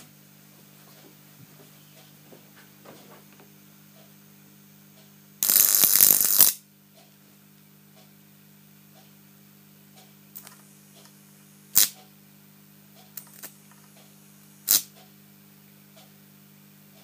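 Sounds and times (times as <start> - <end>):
steady low hum: 0.0 - 17.0
high-voltage sparks snapping: 5.4 - 6.6, 11.8 - 12.0, 14.7 - 14.9.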